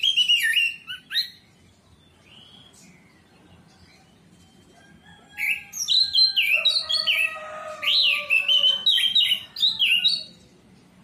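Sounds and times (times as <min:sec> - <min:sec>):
thrush singing whistled phrases: 0:00.0 - 0:02.8.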